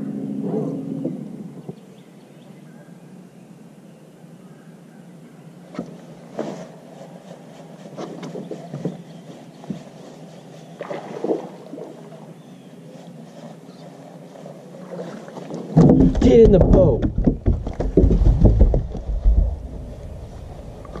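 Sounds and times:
water and wind rushing: 0:09.6 - 0:21.0.

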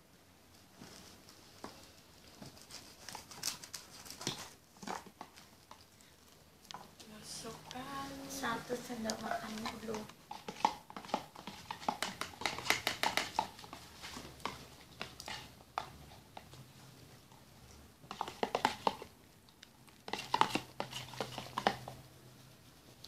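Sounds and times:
plastic spoon scraping plastic tub: 0:07.7 - 0:16.5, 0:18.1 - 0:19.1, 0:20.1 - 0:22.0.

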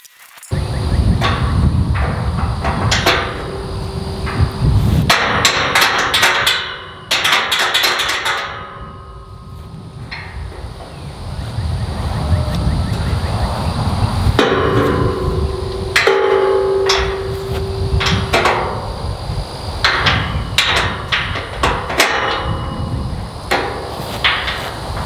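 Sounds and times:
wind rumbling on microphone: 0:00.5 - 0:25.0
metal gate clanking: 0:01.0 - 0:11.1, 0:14.4 - 0:25.0.

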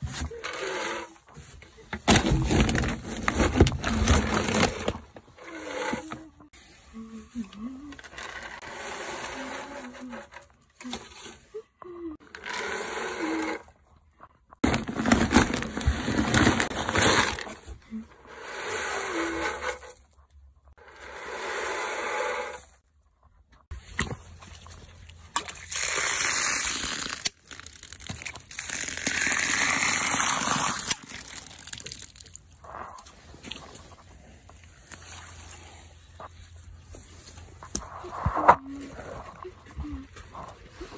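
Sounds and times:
water pouring into bucket: 0:25.4 - 0:32.4.

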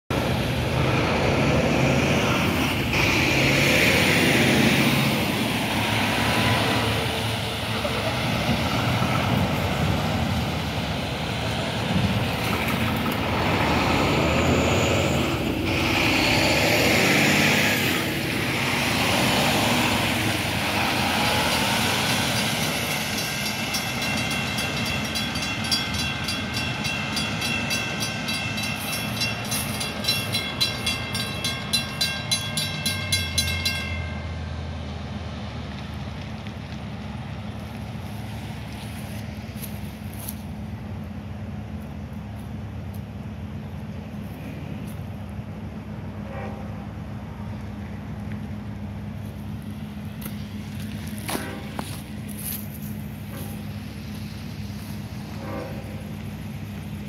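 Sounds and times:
heavy trucks on wet pavement: 0:00.1 - 0:57.0
mechanical crossing bells ringing: 0:21.3 - 0:34.8.

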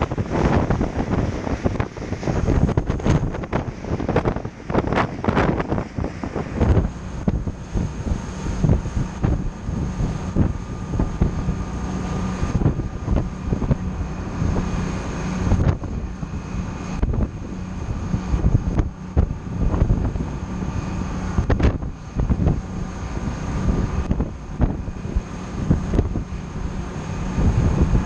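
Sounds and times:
boat engines humming: 0:00.0 - 0:28.0
boat wake rushing: 0:00.0 - 0:28.0
wind buffeting microphone: 0:00.0 - 0:28.0.

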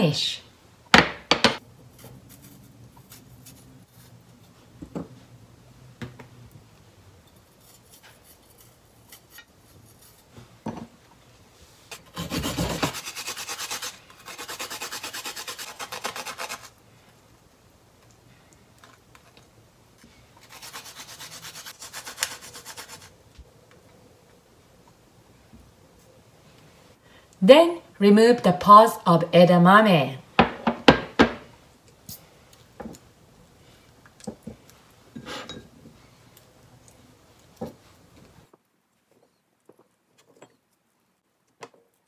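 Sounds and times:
ginger grated on grater: 0:11.9 - 0:16.8, 0:20.4 - 0:23.1.

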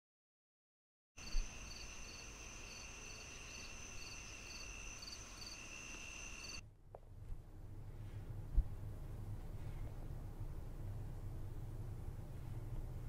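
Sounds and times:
cricket trill: 0:01.2 - 0:06.6
short insect chirp: 0:01.2 - 0:06.6
faint background hiss: 0:01.2 - 0:13.0.

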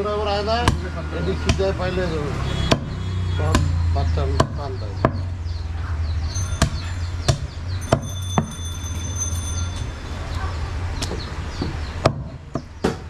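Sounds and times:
cleaver chopping on wooden block: 0:02.7 - 0:03.8, 0:11.6 - 0:13.0.

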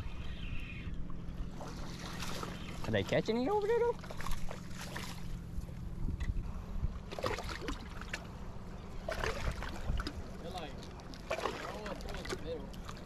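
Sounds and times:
water lapping on rocky shore: 0:01.5 - 0:05.5, 0:06.5 - 0:13.0
wind rumbling on microphone: 0:03.8 - 0:08.2, 0:08.8 - 0:10.4.

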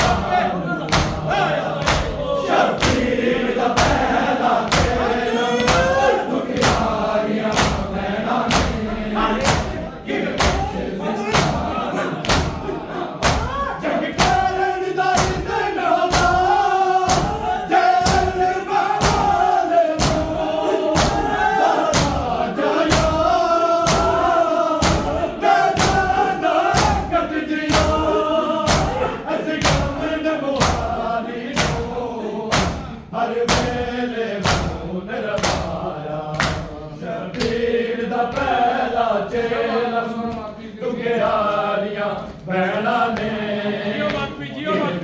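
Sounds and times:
men chanting together: 0:00.0 - 0:45.0
chest-beating thumps: 0:17.1 - 0:30.0.

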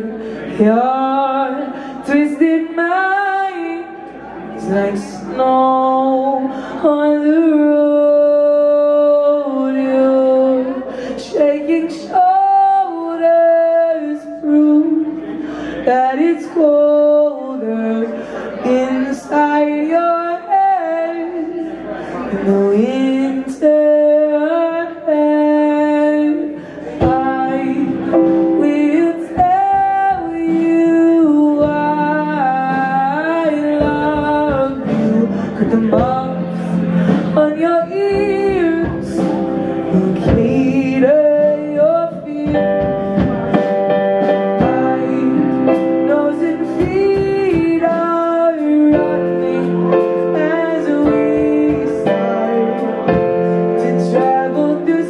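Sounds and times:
electric keyboard: 0:00.0 - 0:55.0
man singing: 0:00.0 - 0:55.0
electric bass guitar: 0:26.8 - 0:55.0
drum kit: 0:26.9 - 0:55.0.

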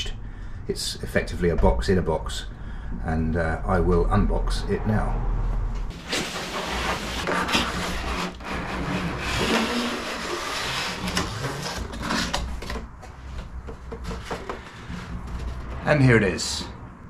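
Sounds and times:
cardboard box rubbing and scraping: 0:05.9 - 0:12.6.

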